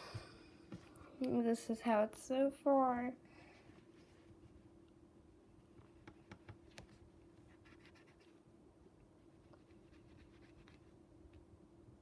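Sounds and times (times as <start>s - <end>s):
pencil scratching on fabric: 6.8s - 8.4s, 9.4s - 10.9s.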